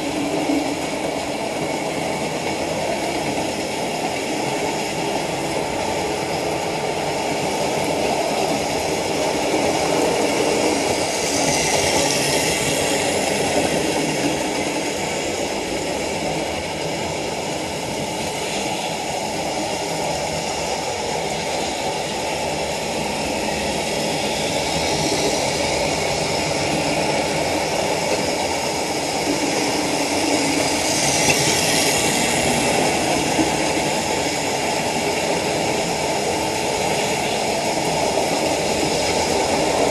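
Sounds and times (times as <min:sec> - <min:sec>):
model trains running on track: 0:00.0 - 0:39.9.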